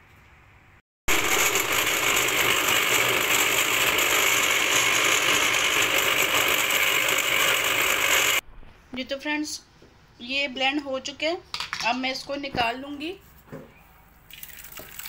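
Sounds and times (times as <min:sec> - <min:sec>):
blender running: 0:01.1 - 0:08.4.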